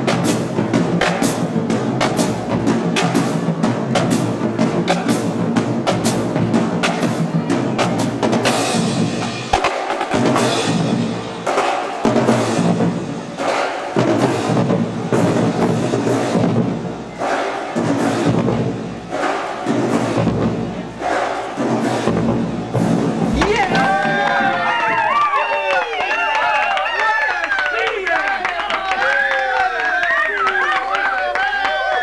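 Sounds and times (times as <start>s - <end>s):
rapid snare drum strokes: 0.0s - 25.0s
bass drums: 21.6s - 25.1s.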